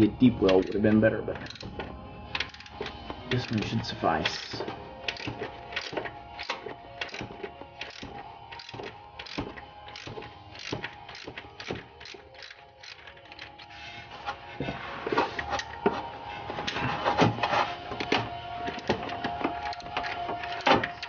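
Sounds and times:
socket ratchet clicking: 0.5s - 13.7s, 18.0s - 21.0s.

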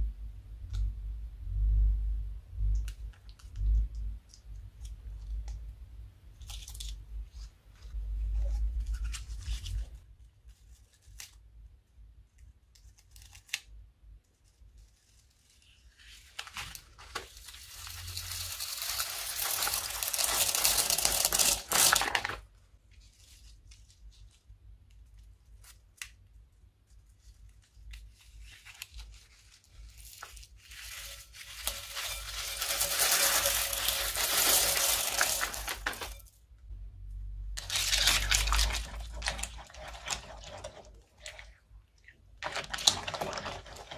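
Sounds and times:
plastic bags crinkling: 16.7s - 22.5s, 28.9s - 36.4s, 37.6s - 41.6s, 42.4s - 43.9s.

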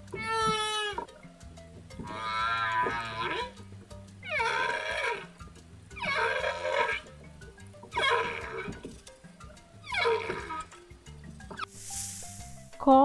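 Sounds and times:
light background music: 0.0s - 13.0s
dolphin squealing calls: 0.2s - 1.1s, 2.0s - 3.6s, 4.2s - 5.4s, 6.0s - 7.1s, 7.9s - 8.8s, 9.8s - 10.8s.

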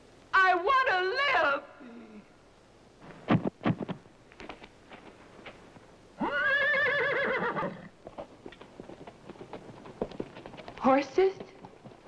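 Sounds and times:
horse whinnying: 6.2s - 8.0s.

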